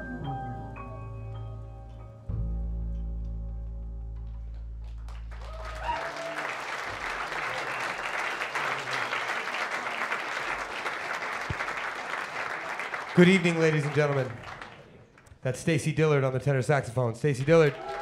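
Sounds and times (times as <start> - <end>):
deep bass note: 0.0 - 5.6
audience applause: 4.9 - 15.3, 17.5 - 18.0
audience cheering: 5.3 - 15.0, 17.4 - 18.0.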